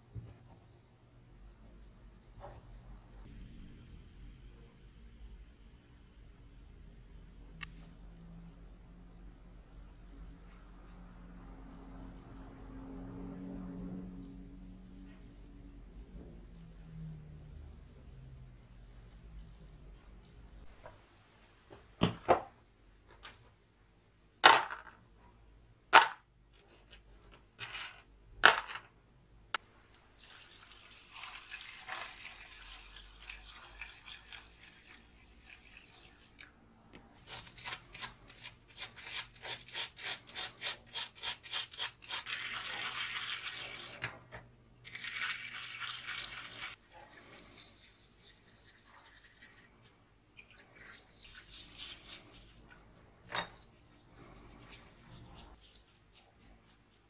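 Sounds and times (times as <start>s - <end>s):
brush scrubbing in liquid: 38.7s - 44.0s, 44.9s - 49.8s, 50.6s - 52.9s, 53.7s - 57.0s.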